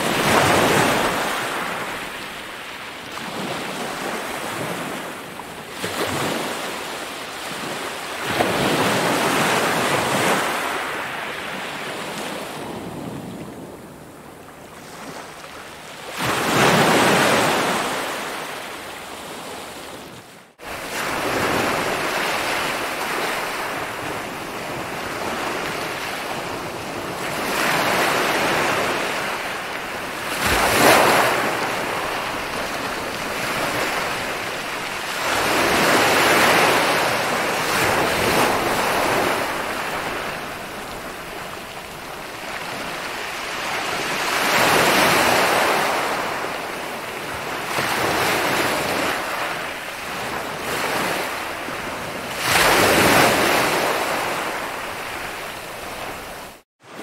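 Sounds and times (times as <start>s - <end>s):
ocean waves breaking on beach: 0.0s - 57.0s.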